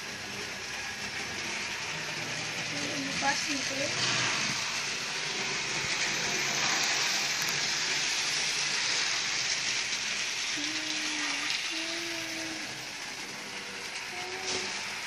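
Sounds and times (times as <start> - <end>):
model train whirring: 0.0 - 15.0.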